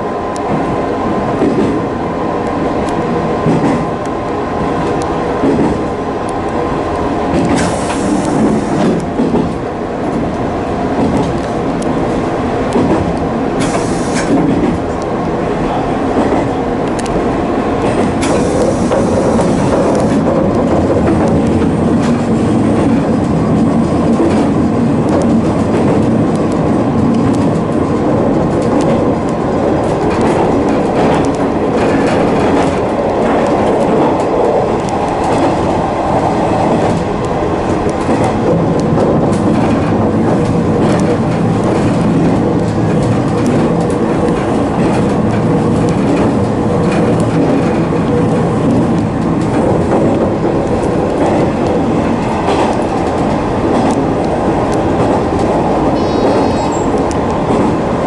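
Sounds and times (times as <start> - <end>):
electric train running: 10.2 - 58.0
wheels clicking over rail joints: 17.8 - 58.0.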